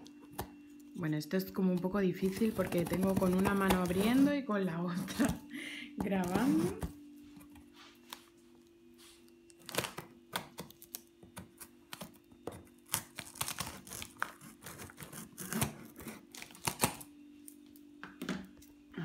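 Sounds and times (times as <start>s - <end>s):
faint steady hum: 0.0s - 19.0s
knife cutting tape and cardboard: 2.3s - 4.3s, 9.6s - 17.0s.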